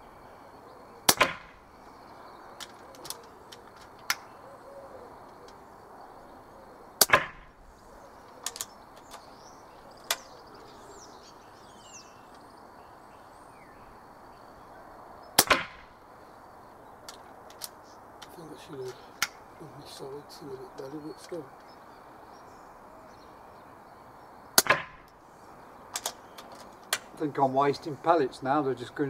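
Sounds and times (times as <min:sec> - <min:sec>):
bird singing: 0:00.0 - 0:29.0
air rifle shot crack: 0:01.0 - 0:01.6, 0:07.0 - 0:07.6, 0:15.4 - 0:16.0, 0:24.6 - 0:25.1.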